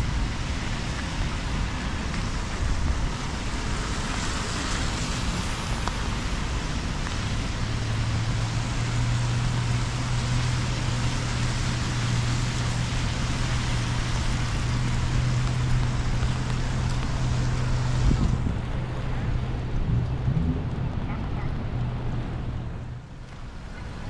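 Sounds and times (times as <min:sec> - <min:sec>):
tyres hissing on wet road: 0:00.0 - 0:24.0
low steady hum: 0:17.4 - 0:23.1.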